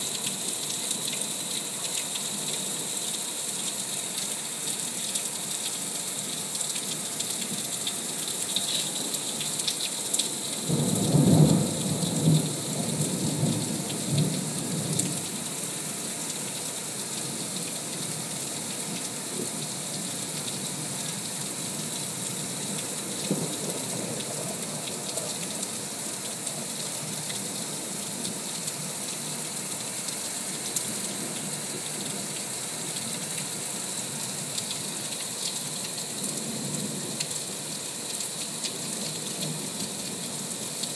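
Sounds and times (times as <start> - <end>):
steady rain falling: 0.0 - 40.9.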